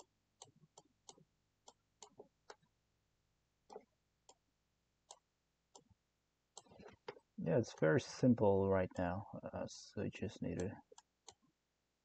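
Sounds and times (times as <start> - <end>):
computer mouse clicks: 6.5 - 7.2, 10.6 - 11.5.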